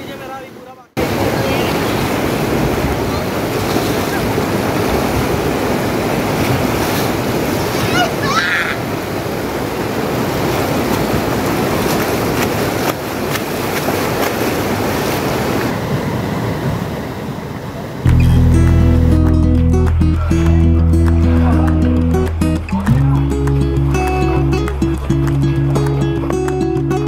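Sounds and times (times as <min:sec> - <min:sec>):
river water rushing over boulders: 0:00.0 - 0:18.0.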